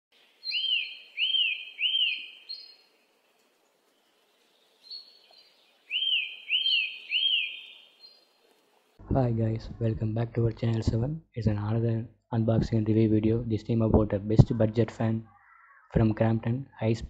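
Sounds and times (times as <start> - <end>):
bird-like chirps: 0.1 - 3.2, 3.9 - 8.3, 15.1 - 16.2.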